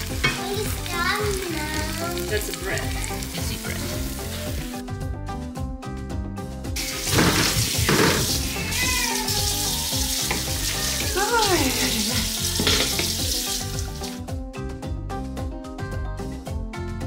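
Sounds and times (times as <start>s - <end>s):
background music: 0.0s - 17.0s
faucet running into sink: 6.8s - 14.2s.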